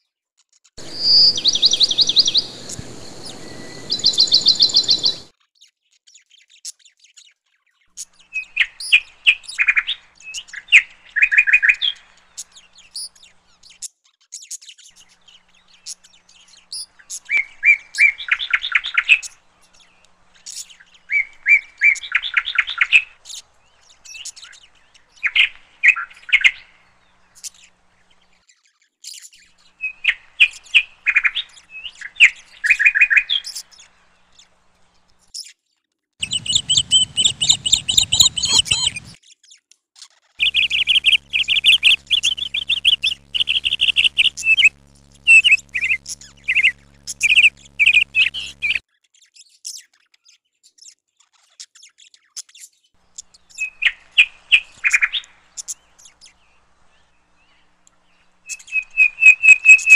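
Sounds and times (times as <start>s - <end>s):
sharp bird chips: 0.8s - 5.3s, 36.2s - 39.2s, 40.4s - 48.8s
young cuckoo begging trills: 0.8s - 5.3s, 36.2s - 39.2s, 40.4s - 48.8s, 58.5s - 59.9s.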